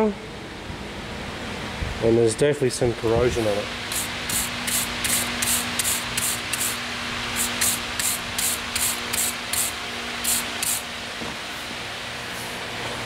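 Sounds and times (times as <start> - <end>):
wire brush scrubbing metal: 3.9 - 10.8.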